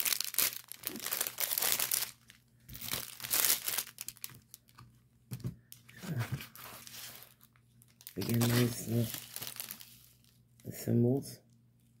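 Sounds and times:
plastic bags crinkling: 0.0 - 4.8, 6.8 - 10.4.

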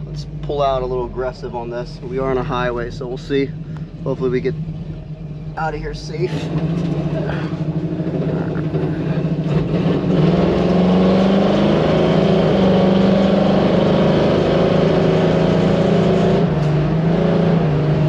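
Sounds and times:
car engine accelerating: 0.0 - 18.0.

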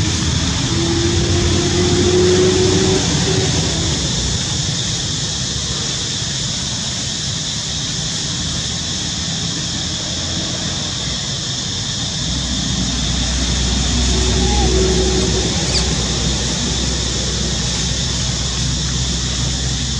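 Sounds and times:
low rumble: 9.8 - 19.9
high-pitched drone: 11.6 - 19.9.

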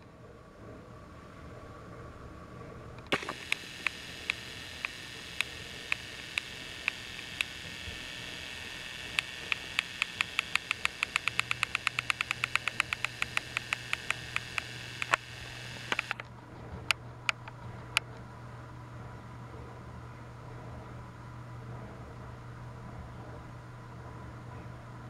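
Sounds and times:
low hum: 0.0 - 25.0
toy motor whirring and clicking: 3.0 - 16.2.

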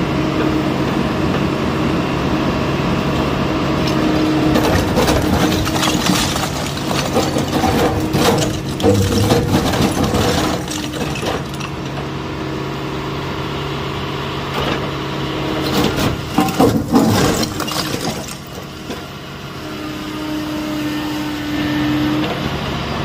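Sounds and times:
diesel engine running: 0.0 - 23.0
brick cracking and falling: 3.8 - 12.2, 15.6 - 19.1
bucket grinding against brick: 3.9 - 12.0, 15.6 - 18.7.

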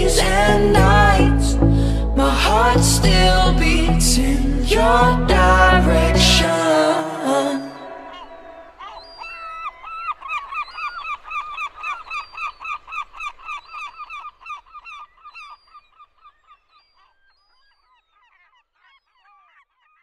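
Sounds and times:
birds honking: 4.8 - 12.3.

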